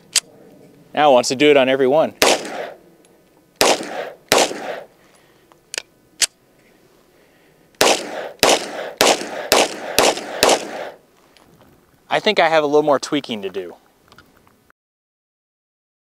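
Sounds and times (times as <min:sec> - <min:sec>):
pistol metallic clicks: 0:02.2 - 0:02.8, 0:03.6 - 0:04.9, 0:05.5 - 0:06.4, 0:07.7 - 0:11.0
pistol shots: 0:02.2 - 0:02.8, 0:03.6 - 0:04.9, 0:07.8 - 0:11.0.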